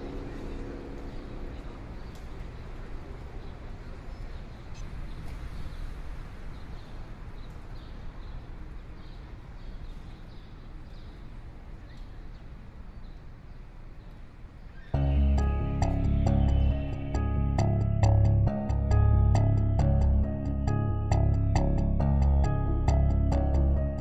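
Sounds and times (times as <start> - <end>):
bird chirping: 14.0 - 24.0
low outdoor rumble: 15.0 - 24.0.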